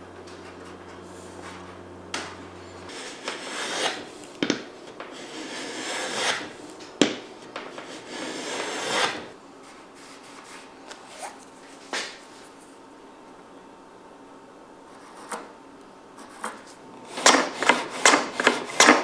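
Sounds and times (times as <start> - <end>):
hand plane shaving wood: 2.9 - 6.6, 7.5 - 9.3, 16.2 - 19.0.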